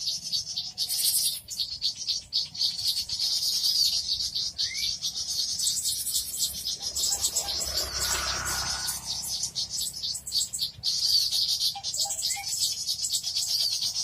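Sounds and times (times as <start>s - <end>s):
small birds chirping: 0.0s - 14.0s
short rising whistle: 6.9s - 9.5s.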